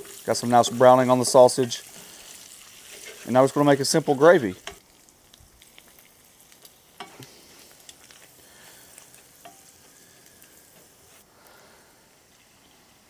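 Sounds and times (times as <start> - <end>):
sausage sizzling in a skillet: 0.0 - 13.0
spatula scraping and tapping pan: 2.8 - 3.3, 7.0 - 7.3, 9.0 - 9.7.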